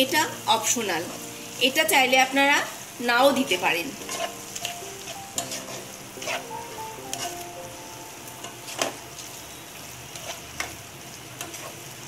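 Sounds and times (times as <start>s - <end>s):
soft background music: 0.0s - 10.7s
food sizzling: 0.0s - 12.0s
spatula scraping a pan: 4.0s - 7.5s, 8.4s - 9.0s, 10.1s - 10.8s, 11.4s - 12.0s.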